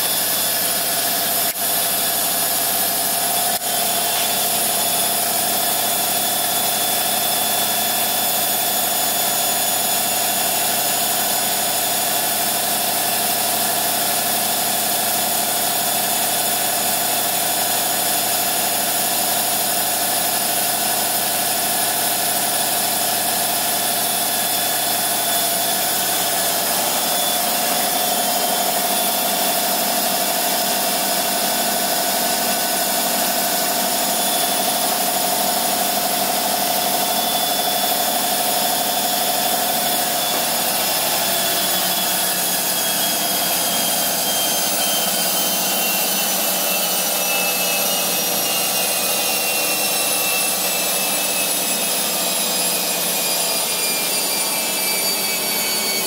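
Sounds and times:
washing machine humming and whining: 0:00.0 - 0:56.0.

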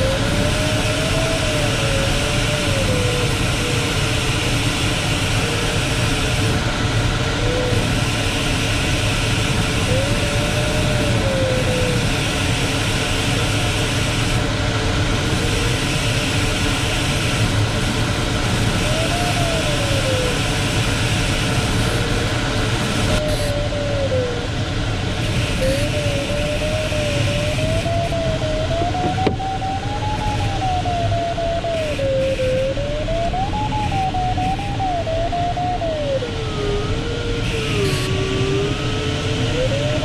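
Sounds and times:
rush of airflow in cockpit: 0:00.0 - 0:40.0
variometer tone sliding in pitch: 0:25.6 - 0:40.0.

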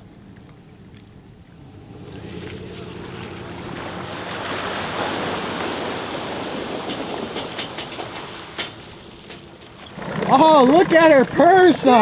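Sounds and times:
low engine hum: 0:00.0 - 0:10.0
water rushing and splashing: 0:00.0 - 0:12.0
sharp ticks and knocks: 0:06.8 - 0:09.9.

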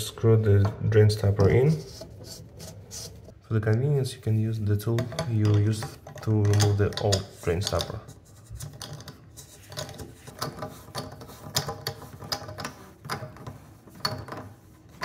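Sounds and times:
metal tool clicking in drain: 0:05.0 - 0:08.0.

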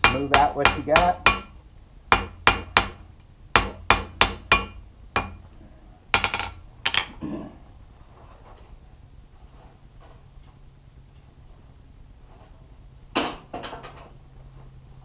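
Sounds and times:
hammer striking hot steel on anvil: 0:00.0 - 0:05.4, 0:06.1 - 0:07.2.

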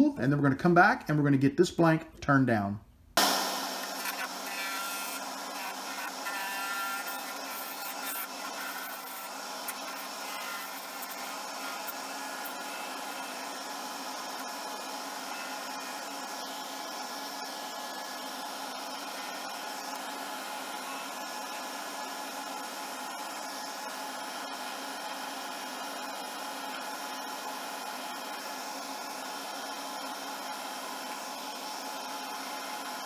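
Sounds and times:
turning tool cutting hiss: 0:03.2 - 0:23.9
lathe whirring: 0:03.2 - 0:33.0.

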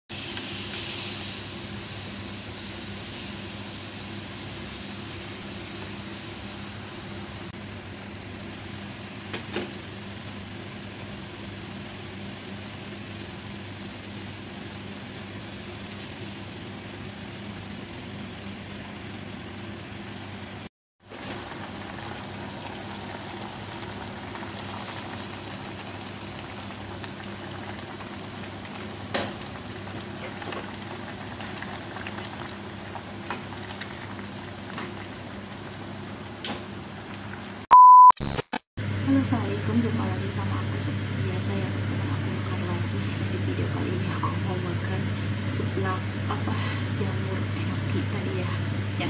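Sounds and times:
broth boiling in a pan: 0:00.1 - 0:37.7.

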